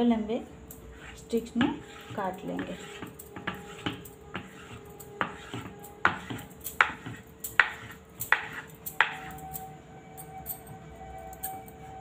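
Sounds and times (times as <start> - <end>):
knife knocking on wooden board: 5.2 - 9.3.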